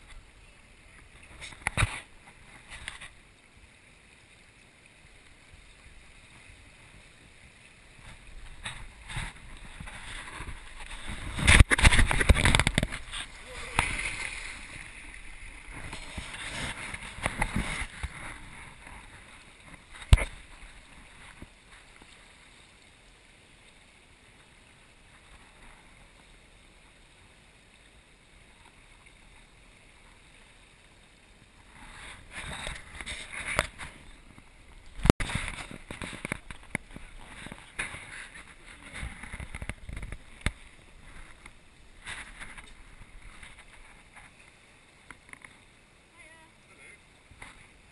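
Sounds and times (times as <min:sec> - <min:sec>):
river water rushing: 0:02.1 - 0:33.2.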